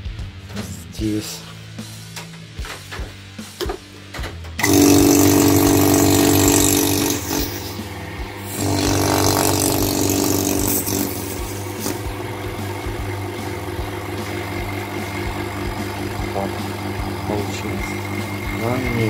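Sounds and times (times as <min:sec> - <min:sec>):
vacuum pump running: 0:04.6 - 0:19.0.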